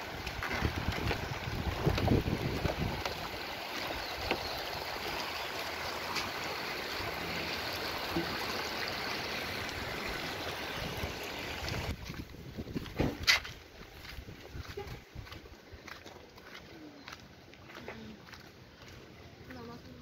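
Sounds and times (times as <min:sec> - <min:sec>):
river rushing over stones: 0:00.0 - 0:12.0.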